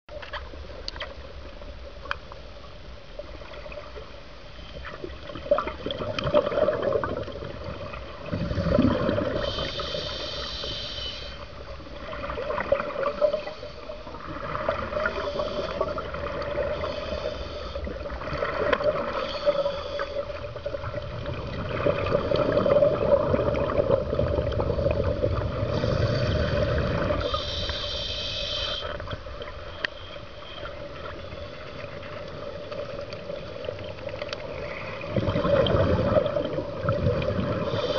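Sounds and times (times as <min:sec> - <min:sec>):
exhaled bubbles gurgling: 0:04.8 - 0:29.7, 0:30.7 - 0:37.9
scuba regulator breathing: 0:08.3 - 0:11.6, 0:13.1 - 0:14.2, 0:14.9 - 0:18.2, 0:19.0 - 0:20.6, 0:24.6 - 0:29.2, 0:37.5 - 0:37.9.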